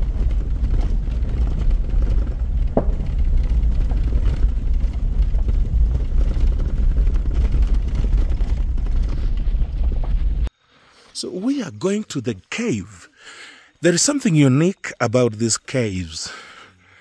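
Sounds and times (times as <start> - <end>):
engine and tyres rumbling: 0.0 - 10.5.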